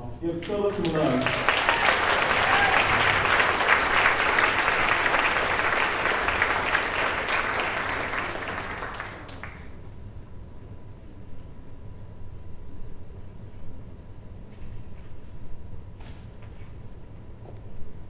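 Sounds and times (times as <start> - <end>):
crowd applauding: 0.4 - 9.8.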